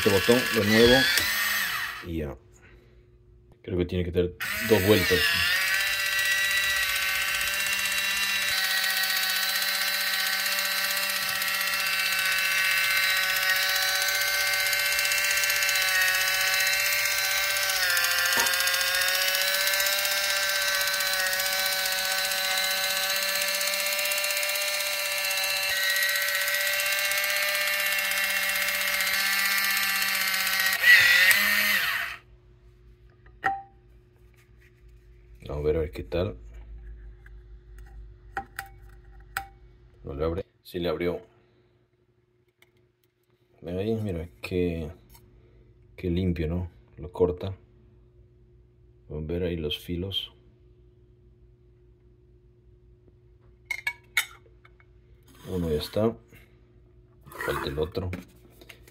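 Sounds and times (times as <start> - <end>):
electric can opener whining: 0.0 - 2.1, 4.4 - 32.3.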